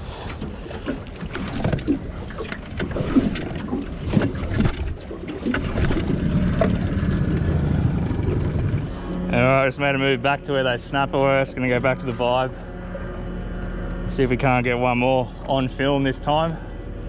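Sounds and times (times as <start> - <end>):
water slapping against hull: 0.0 - 9.3
boat motor humming: 0.0 - 17.0.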